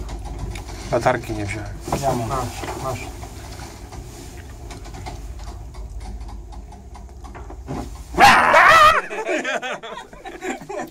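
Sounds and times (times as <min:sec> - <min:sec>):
lift car humming: 0:00.0 - 0:10.9
man howling like a dog: 0:08.2 - 0:09.3.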